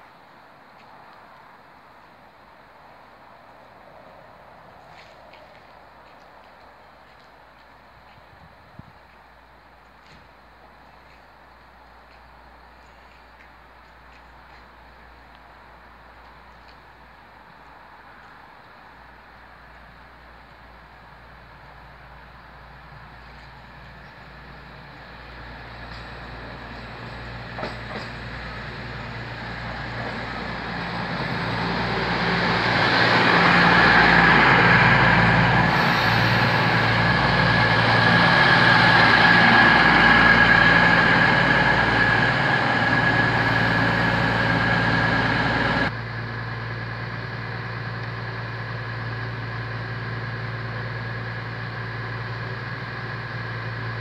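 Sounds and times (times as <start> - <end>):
high train whine: 0.0 - 54.0
diesel train arriving: 17.8 - 54.0
diesel engines idling: 20.1 - 54.0.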